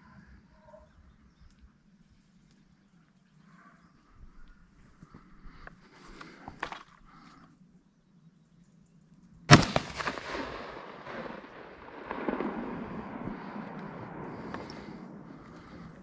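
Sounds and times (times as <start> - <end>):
rifle shot with echo: 9.5 - 15.2
low rustle: 9.8 - 16.0.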